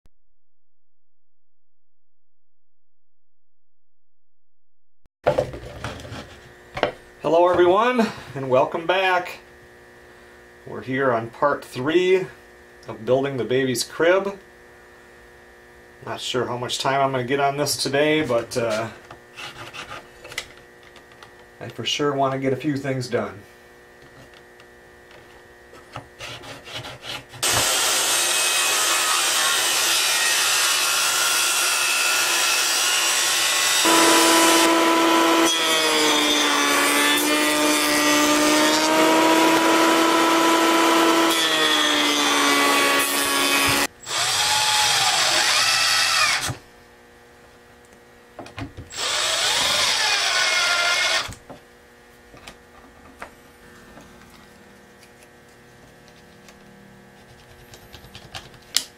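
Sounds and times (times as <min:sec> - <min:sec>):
jointer planing wood: 0:25.9 - 0:46.6, 0:48.9 - 0:51.4.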